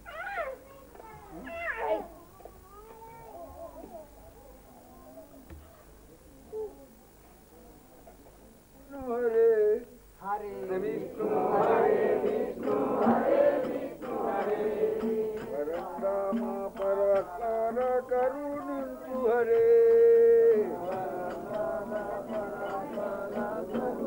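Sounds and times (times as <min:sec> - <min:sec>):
man chanting: 0:15.3 - 0:24.0.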